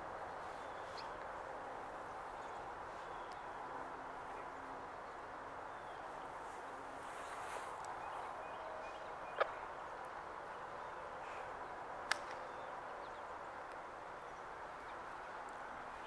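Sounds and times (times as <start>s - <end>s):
faint outdoor hiss: 0.0s - 16.0s
sharp clicks: 12.0s - 12.5s.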